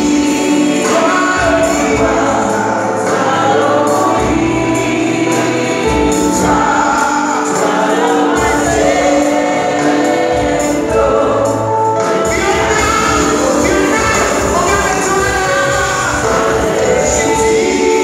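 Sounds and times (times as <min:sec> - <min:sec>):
backing singers: 0:00.0 - 0:18.0
drums: 0:00.0 - 0:18.0
keyboard: 0:00.0 - 0:18.0
lead singer singing: 0:00.0 - 0:18.0.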